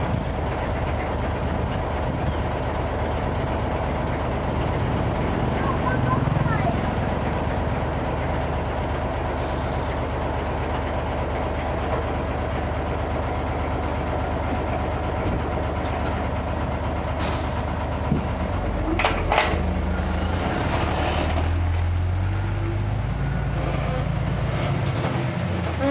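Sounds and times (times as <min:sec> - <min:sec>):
diesel truck engine idling: 0:00.0 - 0:25.9
short air hisses: 0:17.2 - 0:17.6.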